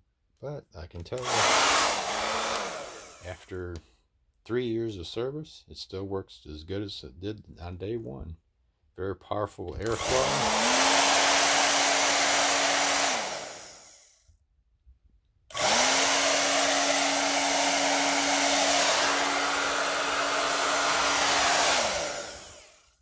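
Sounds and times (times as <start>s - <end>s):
hair dryer blowing: 1.2s - 3.4s, 9.8s - 14.2s, 15.5s - 23.0s
hair dryer winding down: 1.2s - 3.4s, 9.8s - 14.2s, 15.5s - 23.0s.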